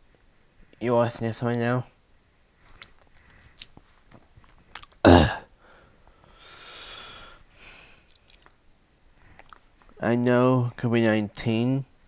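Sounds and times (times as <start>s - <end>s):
breathing close to microphone: 2.6s - 4.0s, 5.6s - 8.1s
man's loud vocal sound: 5.0s - 5.5s.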